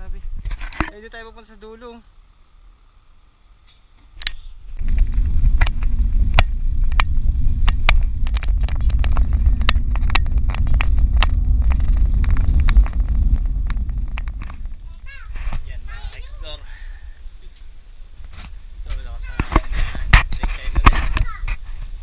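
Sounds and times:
bike clicks and rattles: 4.2s - 14.8s
wind buffeting microphone: 4.6s - 22.0s.

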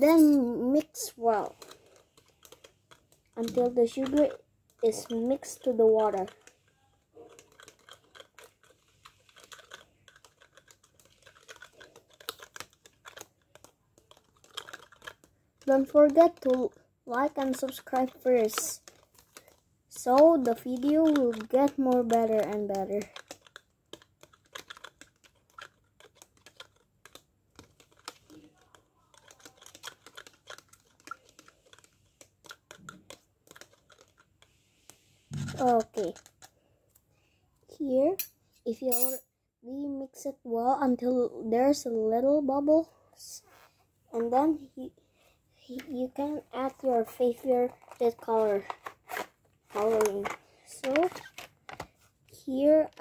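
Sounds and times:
spoon stirring in plastic cup: 1.4s - 16.5s, 24.2s - 36.5s.

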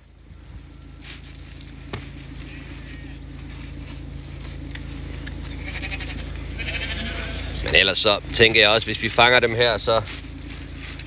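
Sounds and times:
vehicle engine idling: 0.0s - 11.0s
sheep bleating: 2.4s - 3.4s, 5.4s - 8.0s.

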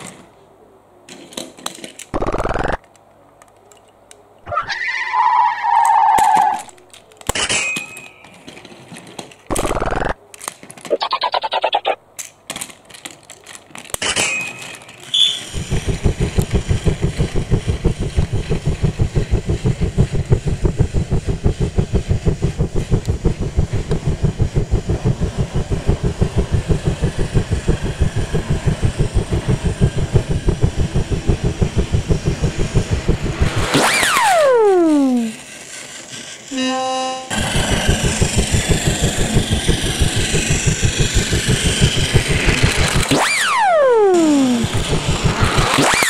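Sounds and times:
toy train clattering on track: 1.1s - 2.1s, 6.2s - 10.9s, 12.2s - 15.6s
clicks: 15.5s - 35.3s.

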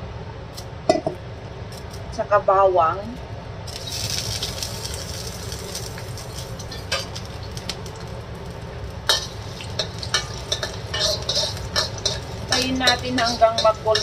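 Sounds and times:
garlic sizzling in hot oil: 3.7s - 14.0s
spatula knocking against wok: 9.1s - 14.0s.

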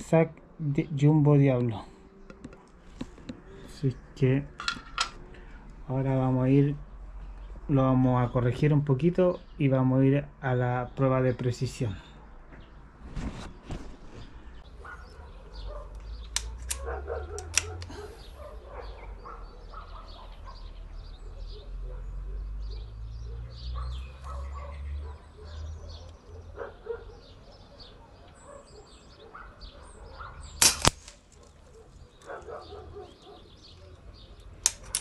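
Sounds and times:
birds chirping: 0.0s - 35.0s
air rifle firing: 30.6s - 31.3s.

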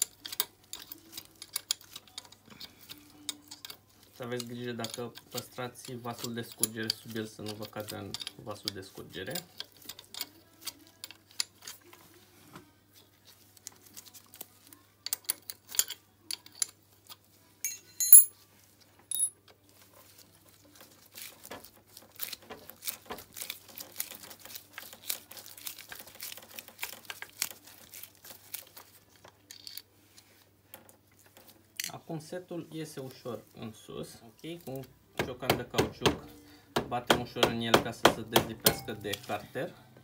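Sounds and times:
metal tools clicking and scraping: 0.0s - 11.8s, 15.0s - 16.8s, 17.6s - 18.3s, 19.1s - 19.3s
sharp metallic clink: 17.7s - 18.3s, 19.1s - 19.3s
small metallic ping: 17.7s - 18.3s.

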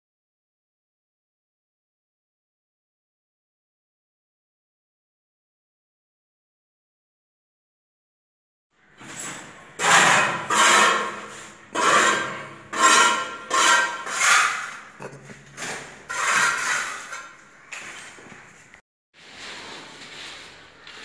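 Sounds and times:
scraping on cement floor: 9.0s - 21.0s.

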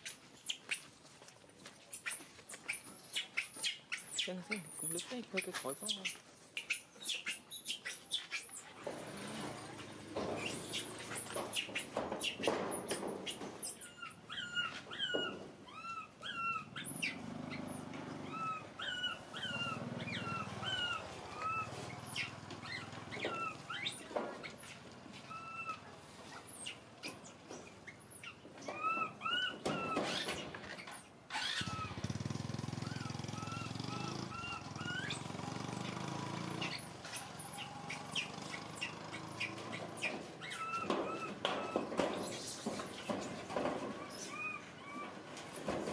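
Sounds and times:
baby monkey whimpering cries: 13.4s - 17.1s, 18.2s - 24.0s, 25.3s - 25.8s, 32.8s - 35.2s, 40.4s - 41.8s, 44.0s - 45.2s.

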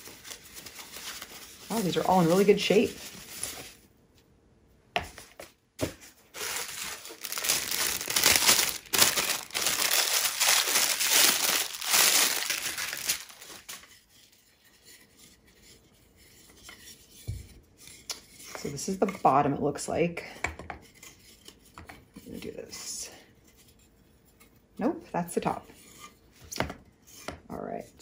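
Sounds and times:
plastic film and paper crinkling: 0.0s - 3.8s, 5.8s - 14.0s.

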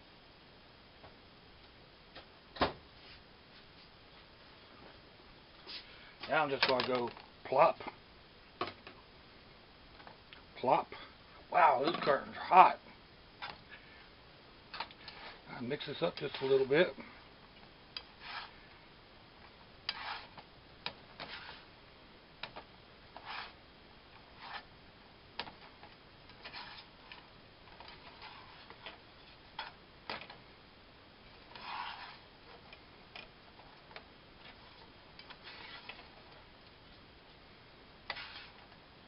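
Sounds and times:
spatula scraping pan: 15.0s - 16.8s, 18.0s - 18.6s, 19.9s - 20.5s, 21.2s - 21.7s, 23.2s - 23.6s, 24.2s - 24.7s, 26.3s - 27.2s, 27.8s - 29.8s, 31.4s - 32.7s, 34.4s - 36.4s, 38.1s - 38.6s.

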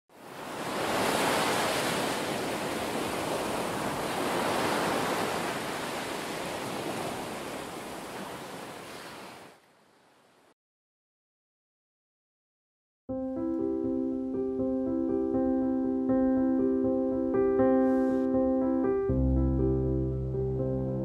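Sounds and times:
ocean waves breaking: 0.1s - 10.4s.

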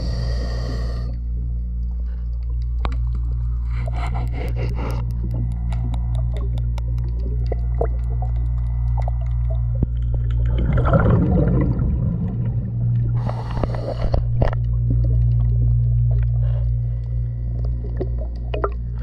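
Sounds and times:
diver breathing through regulator: 0.0s - 1.3s, 13.0s - 14.6s
steady low hum: 0.0s - 19.0s
clicks and scrapes: 2.8s - 7.2s
exhaled bubbles: 3.8s - 19.0s.

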